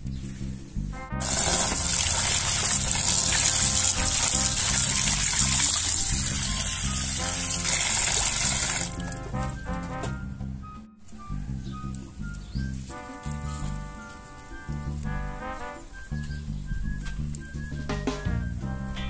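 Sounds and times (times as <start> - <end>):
background music: 0.0 - 19.0
tap water splashing into basin: 1.2 - 6.1
hand washing greens in water: 1.2 - 9.1.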